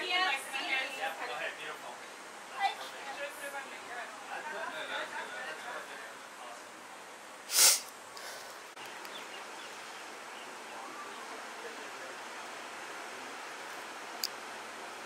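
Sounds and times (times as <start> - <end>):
wind: 0.0 - 15.0
faint bird chirps: 8.8 - 11.4.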